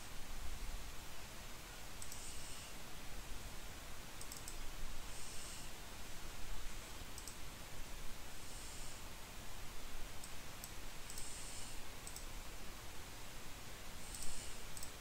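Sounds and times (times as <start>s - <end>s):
low background hiss: 0.0s - 15.0s
computer mouse clicks: 2.0s - 2.6s, 4.2s - 4.6s, 7.2s - 7.4s, 10.2s - 12.3s, 14.0s - 15.0s.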